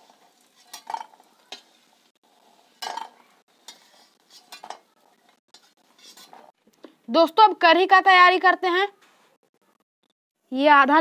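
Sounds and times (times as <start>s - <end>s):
metal spoon scraping a pan: 0.0s - 6.6s.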